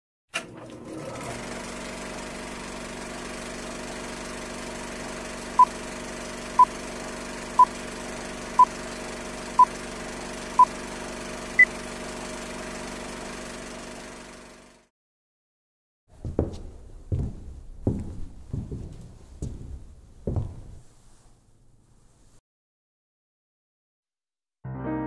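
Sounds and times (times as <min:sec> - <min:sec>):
film projector whirring: 0:00.4 - 0:14.9.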